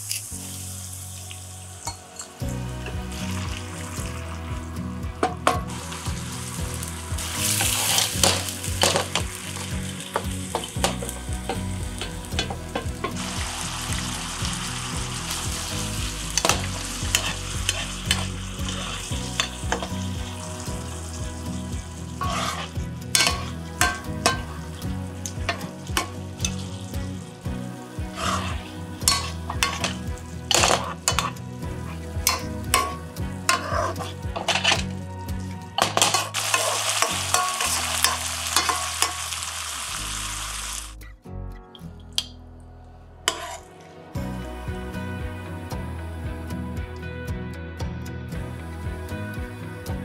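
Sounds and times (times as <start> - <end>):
sauce sizzling in a frying pan: 0.0 - 41.0
utensils scraping a pan: 16.4 - 20.0, 22.2 - 24.5, 28.1 - 31.4, 32.3 - 34.9, 35.8 - 39.3, 43.3 - 43.8.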